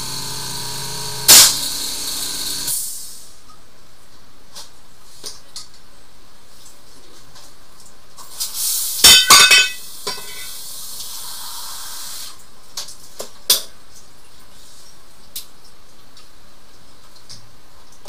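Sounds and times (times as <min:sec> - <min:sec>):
high hiss: 0:08.3 - 0:09.2, 0:09.8 - 0:12.4.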